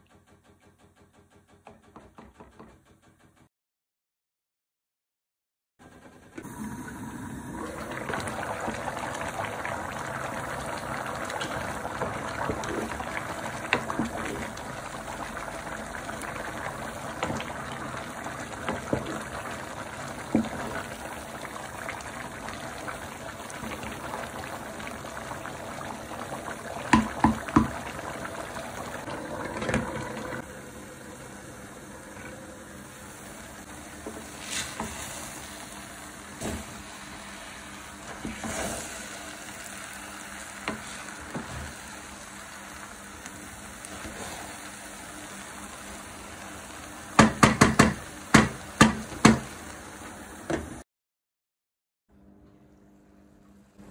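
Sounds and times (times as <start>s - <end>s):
rice and stock bubbling in a pan: 6.4s - 50.5s
utensils knocking against pan: 47.2s - 49.5s.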